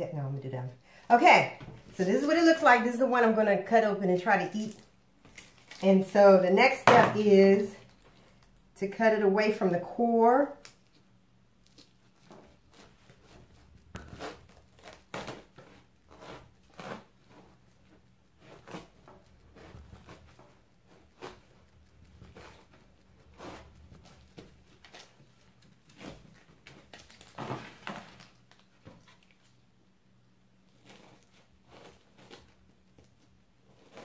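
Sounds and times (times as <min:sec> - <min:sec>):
knife cutting through fruit flesh: 0:11.7 - 0:28.3, 0:30.7 - 0:34.0.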